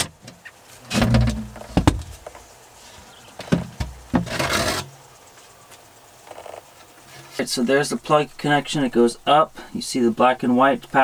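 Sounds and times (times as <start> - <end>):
wooden panel scraping rumble: 0.8 - 2.3, 3.6 - 4.9.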